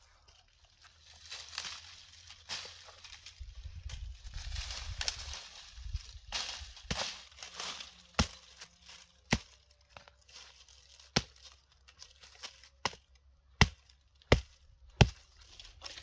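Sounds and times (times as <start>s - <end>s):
hatchet chopping branches: 6.3s - 16.0s.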